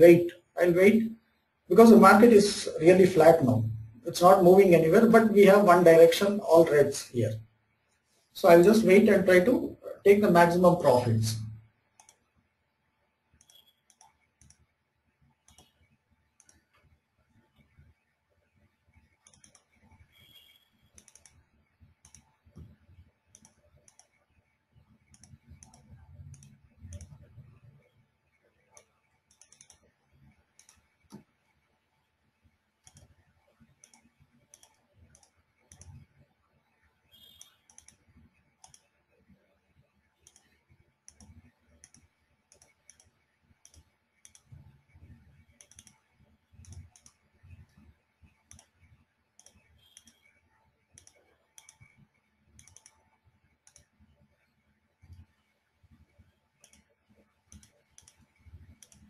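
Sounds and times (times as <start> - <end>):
computer keyboard and mouse clicking: 12.0 - 12.3, 13.4 - 14.7, 15.4 - 16.8, 19.1 - 20.0, 20.9 - 24.2, 25.0 - 27.4, 28.6 - 31.4, 32.8 - 36.2, 37.2 - 39.0, 40.2 - 54.0, 56.6 - 59.0.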